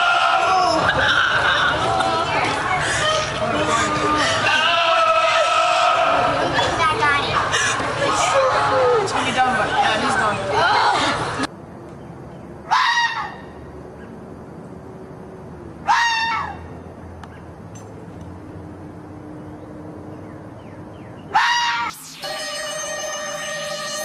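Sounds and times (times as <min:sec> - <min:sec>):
fox screaming: 0:04.4 - 0:06.4, 0:12.7 - 0:13.5, 0:15.8 - 0:16.6, 0:21.3 - 0:21.9.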